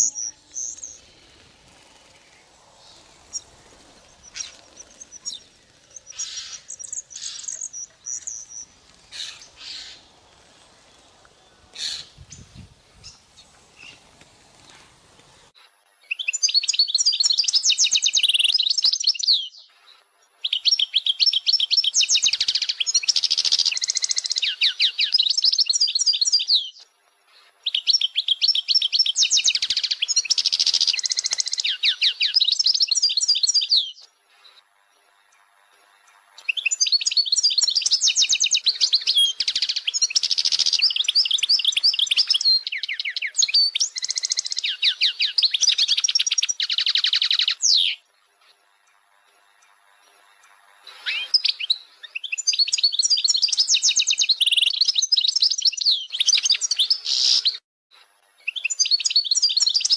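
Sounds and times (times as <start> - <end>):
goldfinch singing: 0.0 - 15.5.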